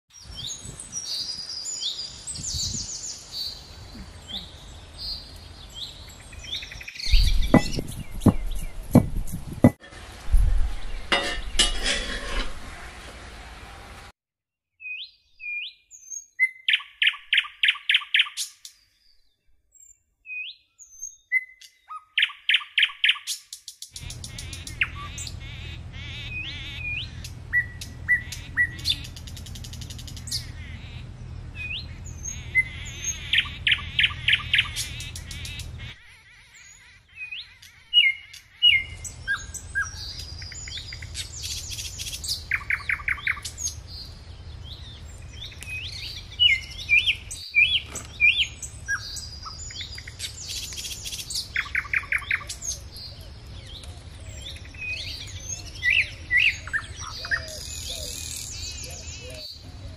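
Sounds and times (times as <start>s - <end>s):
wild birds chirping: 0.1s - 14.0s, 14.8s - 59.9s
dull thumps: 7.1s - 12.6s.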